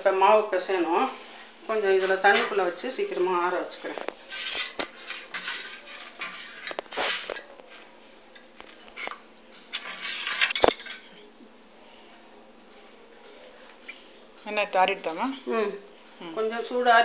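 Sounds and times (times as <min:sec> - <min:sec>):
metal pans clattering and scraping: 0:01.9 - 0:02.7, 0:03.9 - 0:07.8, 0:08.4 - 0:11.1.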